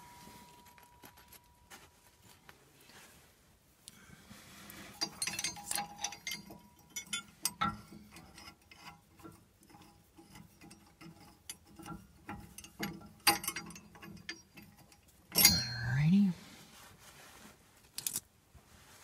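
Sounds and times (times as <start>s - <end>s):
metal nuts and washers clicking: 4.9s - 16.1s, 17.9s - 18.3s.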